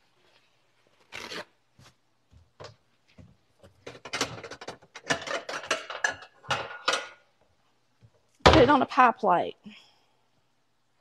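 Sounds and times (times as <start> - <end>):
paper towel ripping off roll: 0.9 - 1.9
dishes clinking: 3.9 - 7.3.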